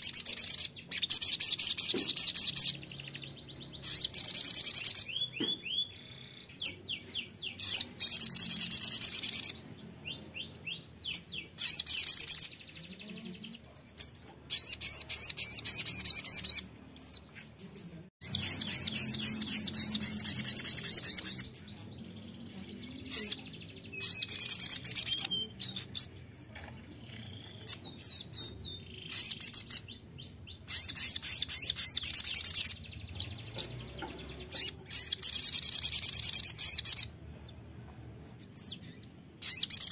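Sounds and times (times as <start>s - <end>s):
sunbird trilling song: 0.0s - 39.9s.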